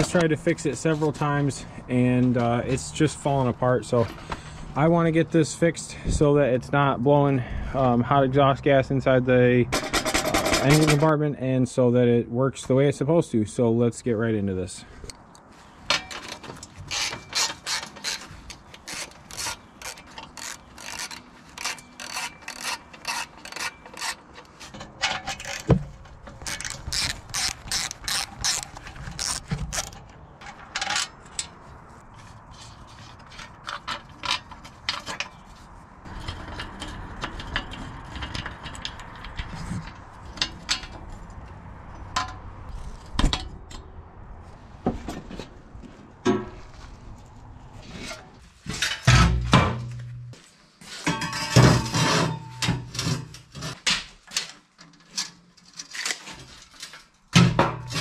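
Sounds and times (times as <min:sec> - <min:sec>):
ratchet wrench clicking: 0:26.5 - 0:29.4.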